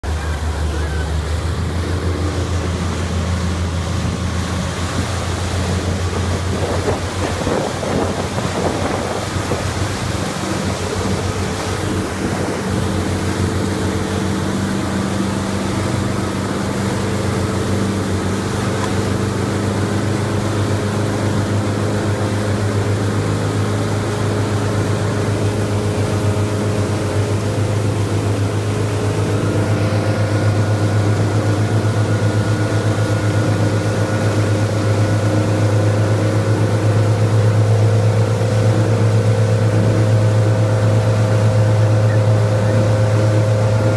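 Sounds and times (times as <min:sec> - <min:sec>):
motorboat engine running: 0:00.0 - 0:43.9
wake churning: 0:00.0 - 0:43.9
wind buffeting microphone: 0:04.8 - 0:14.1.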